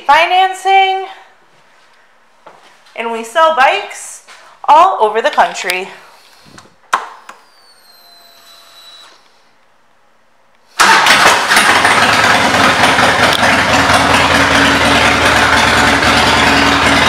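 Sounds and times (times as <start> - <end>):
faint ignition whine: 5.7 - 17.0
motorcycle engine running loudly: 11.0 - 17.0.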